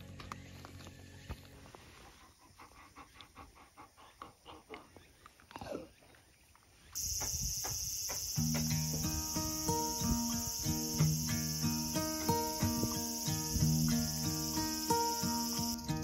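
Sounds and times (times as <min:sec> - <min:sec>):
insects chirping: 0:00.0 - 0:16.0
dog panting: 0:02.0 - 0:05.2.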